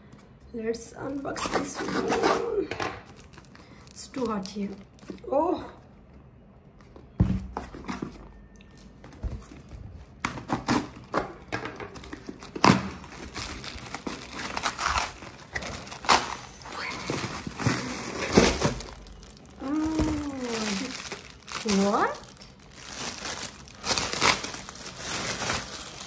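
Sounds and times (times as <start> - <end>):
cardboard box and tape tearing: 1.4 - 2.6, 10.3 - 11.1, 12.3 - 21.8
plastic wrapping crinkling: 3.0 - 5.3, 7.8 - 26.0.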